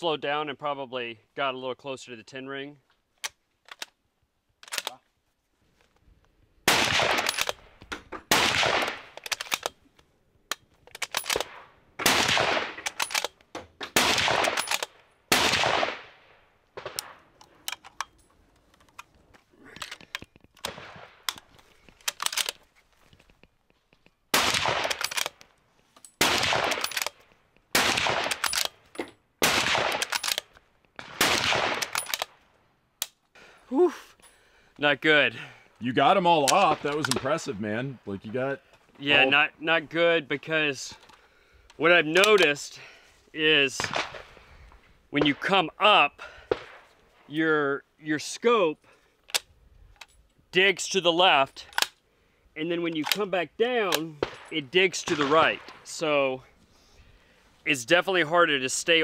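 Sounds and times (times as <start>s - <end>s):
rifle bolt clicks: 3.2s - 4.0s, 4.6s - 5.0s, 7.0s - 11.6s, 12.4s - 15.0s, 16.8s - 22.6s, 23.2s - 32.4s, 33.0s - 33.3s, 36.4s - 37.3s, 40.9s - 42.6s, 49.2s - 50.2s, 51.6s - 52.0s, 52.9s - 53.3s
rifle shots echoing: 6.6s - 9.8s, 11.0s - 17.4s, 20.6s - 21.4s, 24.3s - 25.4s, 26.2s - 28.8s, 29.4s - 32.4s, 36.4s - 37.5s, 43.8s - 44.4s, 46.4s - 46.9s, 53.9s - 55.9s.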